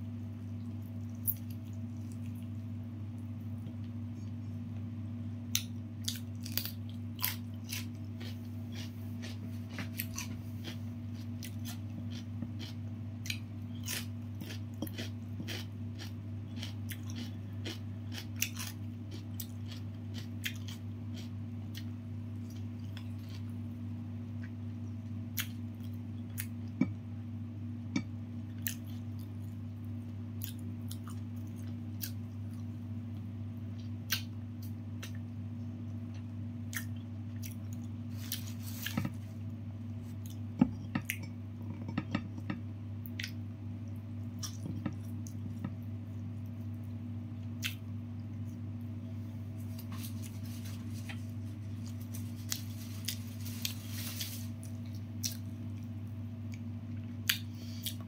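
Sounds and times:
steady low hum: 0.0 - 58.0
chewing: 0.6 - 2.5, 5.5 - 23.5, 49.8 - 55.9
crunches of fried chicken: 49.7 - 56.0.

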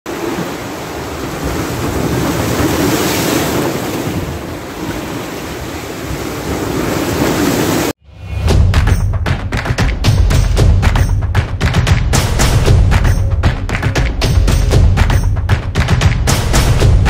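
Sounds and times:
sea waves washing against rocks: 0.1 - 8.0
music with heavy low beats: 8.3 - 17.0.

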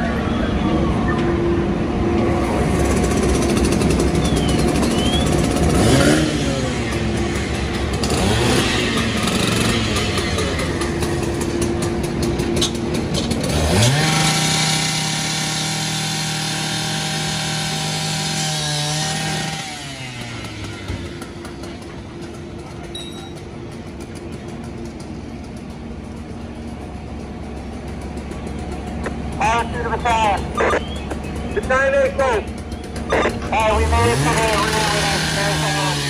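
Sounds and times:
rotary saw revving: 2.4 - 22.0, 32.9 - 36.0.

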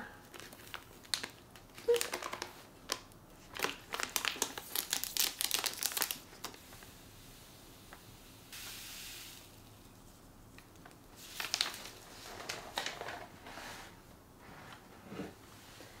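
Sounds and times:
plastic pouch crinkling: 0.3 - 6.6, 10.6 - 13.4.

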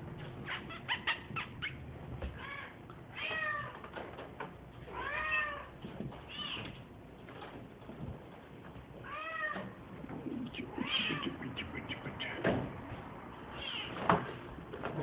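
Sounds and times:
kitten meowing: 10.6 - 12.4, 13.5 - 14.0.

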